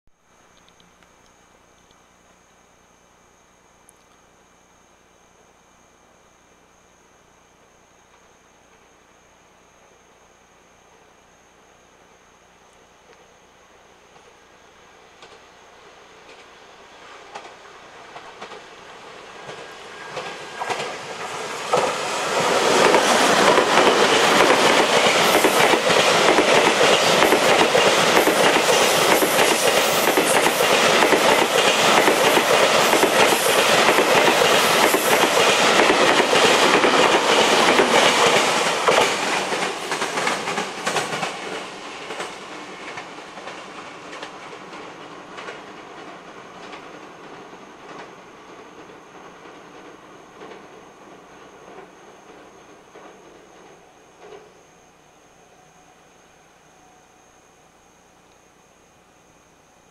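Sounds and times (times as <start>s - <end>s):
freight train passing: 13.7s - 56.4s.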